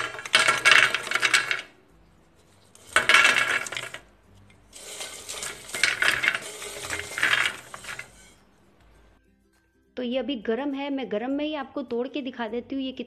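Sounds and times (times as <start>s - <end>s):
fried snacks clattering on steel plate: 0.0s - 1.8s, 2.8s - 8.4s.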